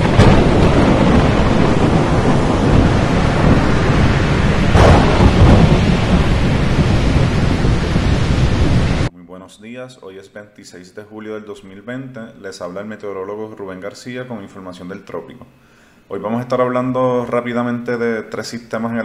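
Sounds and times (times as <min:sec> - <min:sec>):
heavy rain: 0:00.0 - 0:09.1
rumbling thunder: 0:00.0 - 0:09.1
sharp thunderclap: 0:00.0 - 0:09.1.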